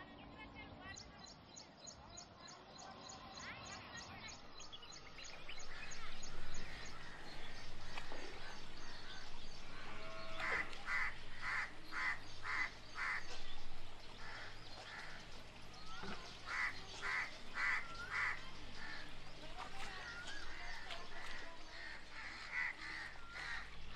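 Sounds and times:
bird giving harsh calls: 5.5 - 15.2, 15.8 - 19.1.

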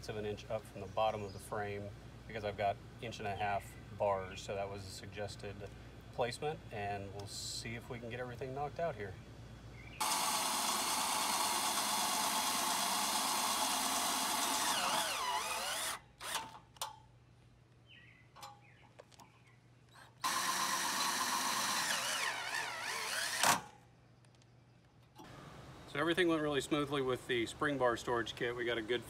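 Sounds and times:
cordless drill driving screws: 10.0 - 16.6, 20.1 - 23.8.

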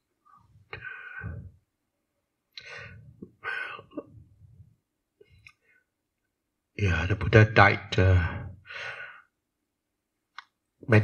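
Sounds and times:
people talking: 6.8 - 8.5.

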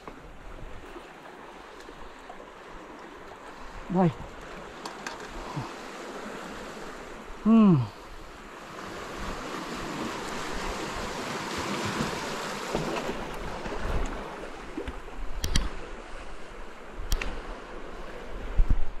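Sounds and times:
surf washing against rocks: 0.0 - 19.0
sharp clicks: 15.4 - 15.8, 17.1 - 17.4.

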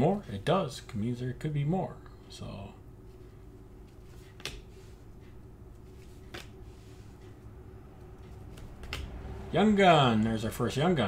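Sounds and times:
faint steady hum: 0.0 - 11.0
trading cards being handled: 3.0 - 9.5
sharp card snaps: 8.5 - 9.2.

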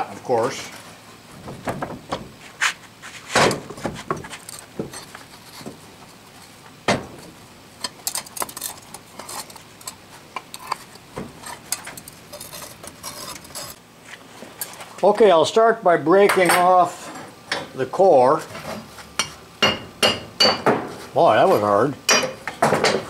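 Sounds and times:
metal knocks and scrapes: 1.3 - 13.8.

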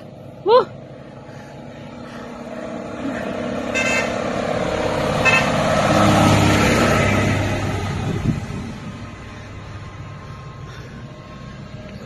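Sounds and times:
truck passing: 0.0 - 12.0
truck horn toots: 3.7 - 4.3, 5.2 - 5.7.

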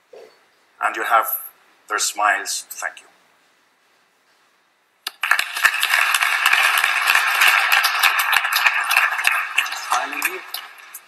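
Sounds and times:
audience applauding: 5.1 - 11.0.

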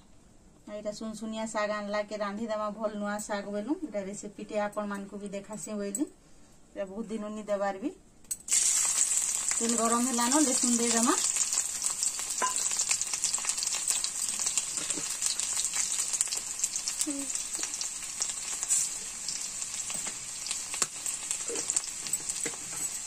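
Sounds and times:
garlic sizzling in hot oil: 8.3 - 23.0.

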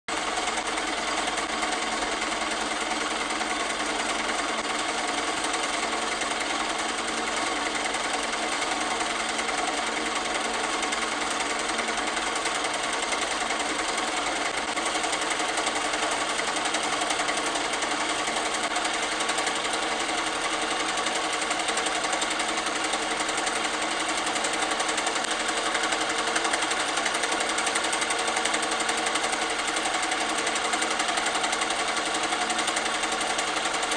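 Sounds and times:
film projector clattering: 0.1 - 33.9.

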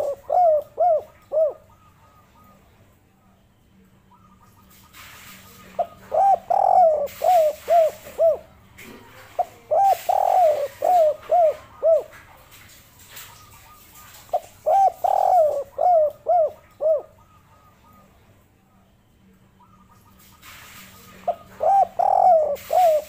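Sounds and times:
dove cooing: 0.0 - 2.7, 5.6 - 12.3, 13.1 - 18.2, 21.1 - 23.0.

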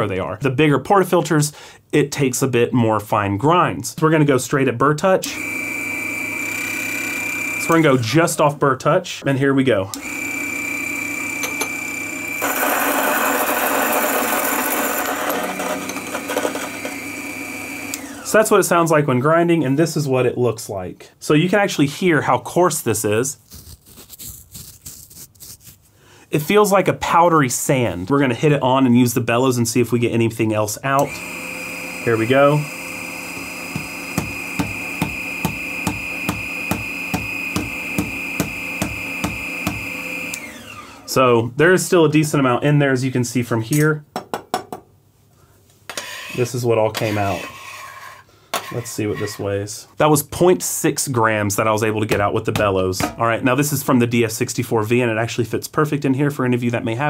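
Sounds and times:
coffee grinder grinding: 5.3 - 8.0, 10.0 - 18.4, 23.4 - 25.8, 31.0 - 41.2.

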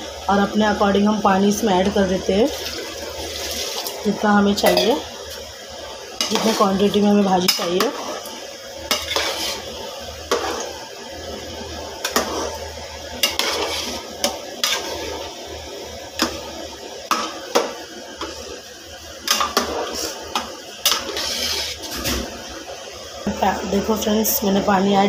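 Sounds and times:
metal spoon scraping pot: 8.9 - 9.7, 13.2 - 14.0, 20.9 - 21.8.

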